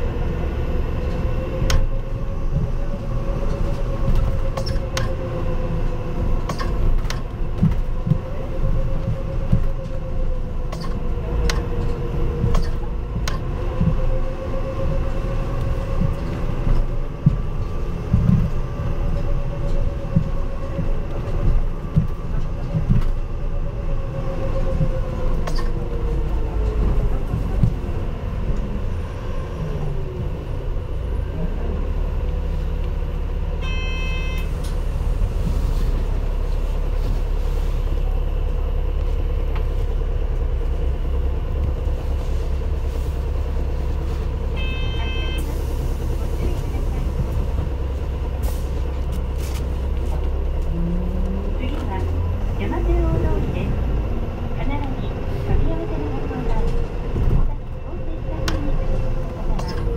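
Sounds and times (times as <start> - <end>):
bus engine whine: 0.0 - 59.9
road rumble: 0.0 - 59.9.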